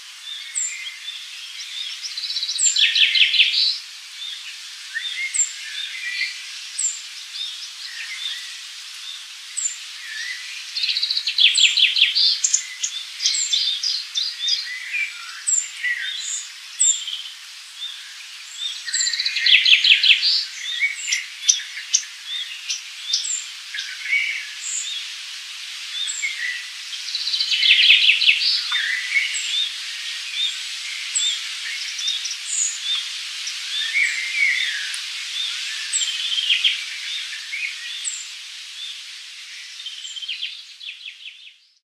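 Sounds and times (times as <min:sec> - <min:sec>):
steady high hiss: 0:00.0 - 0:41.8
birds chirping and calling: 0:09.6 - 0:25.2, 0:25.8 - 0:41.7.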